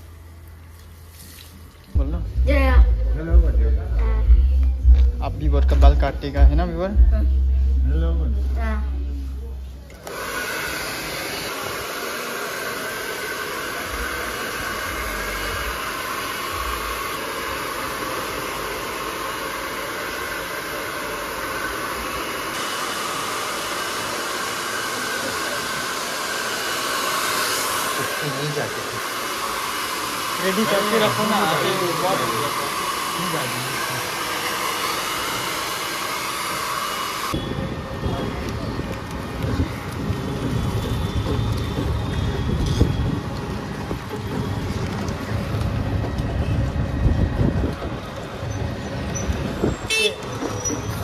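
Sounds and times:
hair dryer blowing: 0:09.9 - 0:48.4.

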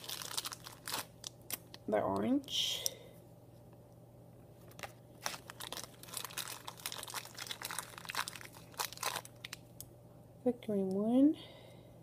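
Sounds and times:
plastic bag crinkling: 0:00.0 - 0:01.9, 0:04.7 - 0:09.7.

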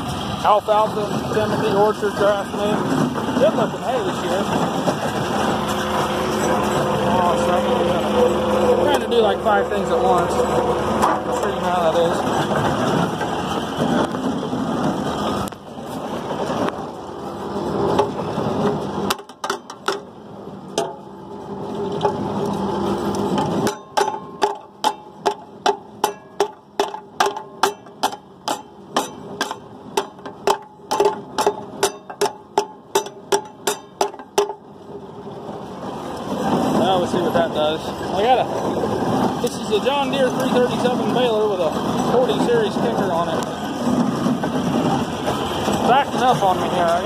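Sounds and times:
hay baling machinery running: 0:00.0 - 0:47.0.

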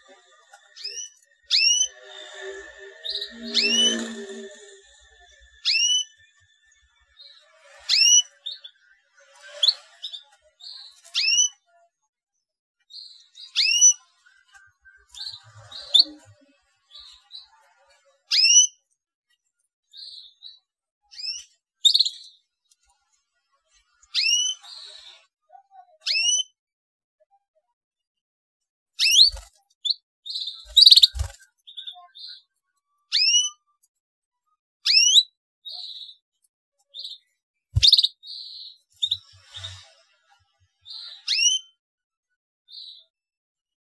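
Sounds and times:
canary chirping: 0:00.0 - 0:11.7, 0:12.8 - 0:14.2, 0:15.1 - 0:17.6, 0:18.3 - 0:18.8, 0:19.9 - 0:22.4, 0:24.0 - 0:25.3, 0:29.0 - 0:33.8, 0:34.8 - 0:36.2, 0:36.9 - 0:41.8, 0:42.7 - 0:43.1
soft canary twitters: 0:00.0 - 0:11.8, 0:12.8 - 0:17.6, 0:18.3 - 0:22.8, 0:24.0 - 0:26.6, 0:28.9 - 0:34.0, 0:34.8 - 0:41.7.

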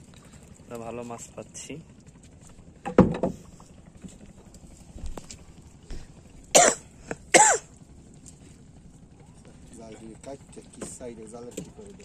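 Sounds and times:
man coughing: 0:06.6 - 0:07.7.

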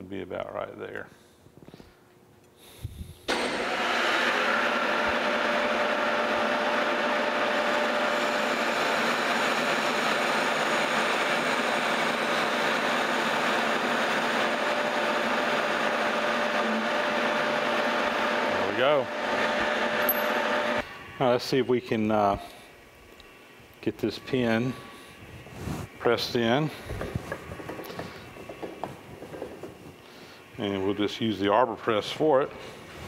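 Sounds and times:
metal lathe running: 0:03.3 - 0:20.8.

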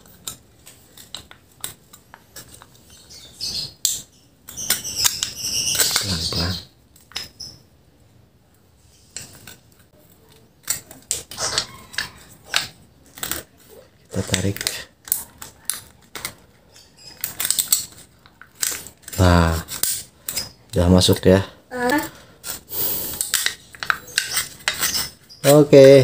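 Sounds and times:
rustling and scraping: 0:00.0 - 0:07.6, 0:08.7 - 0:21.3, 0:22.0 - 0:26.0
aluminium can clicking and crinkling: 0:10.6 - 0:20.4.

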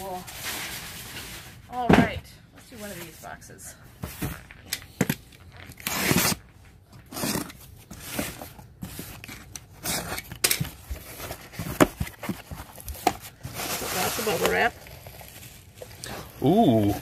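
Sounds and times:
box cutter slitting tape: 0:05.7 - 0:06.4, 0:07.0 - 0:08.4
cardboard flaps rustling: 0:07.0 - 0:15.7.

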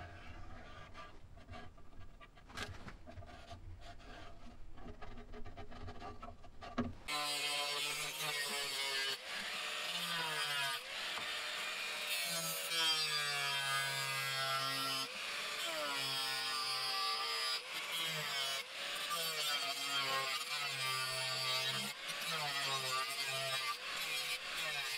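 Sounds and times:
angle grinder cutting steel: 0:07.1 - 0:24.9.

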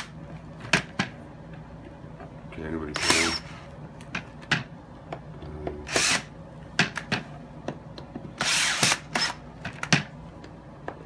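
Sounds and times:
cordless drill driving screws: 0:08.4 - 0:09.4.

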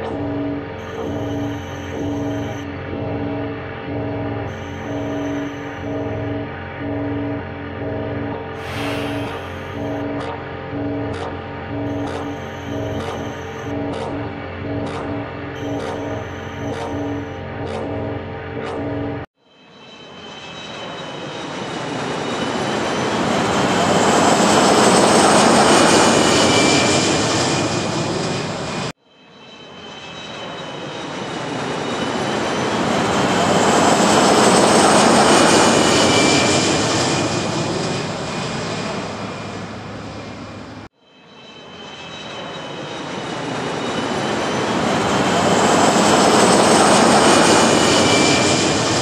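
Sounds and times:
jet aircraft flyby roar: 0:08.4 - 0:19.3, 0:19.9 - 0:29.0, 0:29.6 - 0:49.0.

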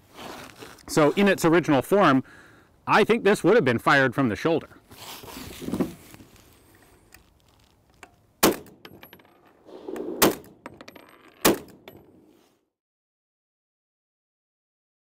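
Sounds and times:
rifle shots: 0:08.4 - 0:08.8, 0:10.0 - 0:10.6, 0:11.4 - 0:11.8.

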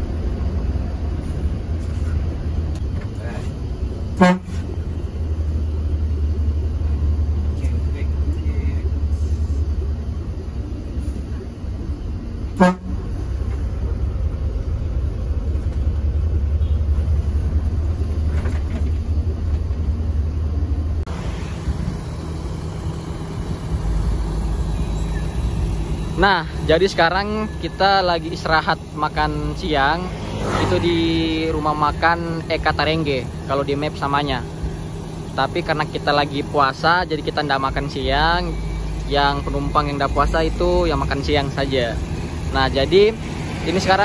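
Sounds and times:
bus engine rumbling: 0:00.0 - 0:44.0
horn toots: 0:04.1 - 0:04.7, 0:12.5 - 0:13.2.

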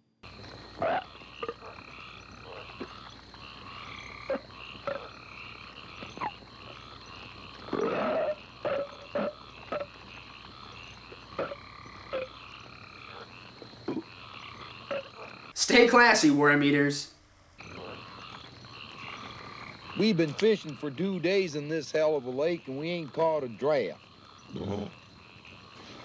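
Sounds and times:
night outdoor ambience: 0:00.0 - 0:26.0
men belching: 0:07.6 - 0:10.2, 0:13.9 - 0:15.2, 0:24.5 - 0:25.5.

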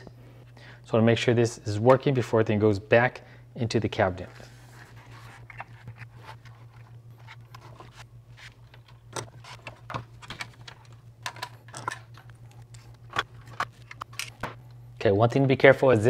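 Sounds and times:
steady low hum: 0:00.0 - 0:16.0
plastic clicks and clatter: 0:08.7 - 0:14.4.

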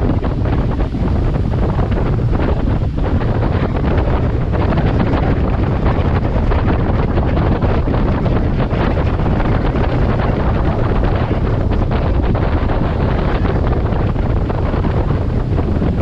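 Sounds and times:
boat engine drone: 0:00.0 - 0:16.0
rushing water: 0:00.0 - 0:16.0
wind: 0:00.0 - 0:16.0.

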